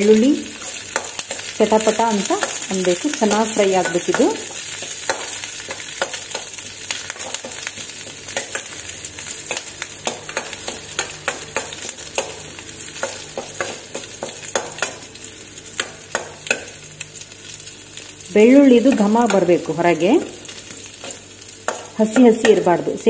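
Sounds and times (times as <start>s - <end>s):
food sizzling in oil: 0.0s - 23.0s
spatula clinking and scraping pan: 0.6s - 8.8s, 9.4s - 15.1s, 15.8s - 16.8s, 20.7s - 22.8s.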